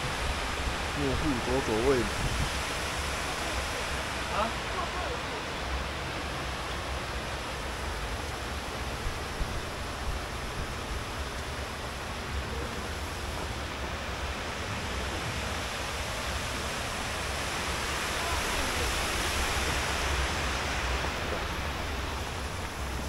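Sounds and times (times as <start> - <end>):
river water rushing: 0.0 - 23.0.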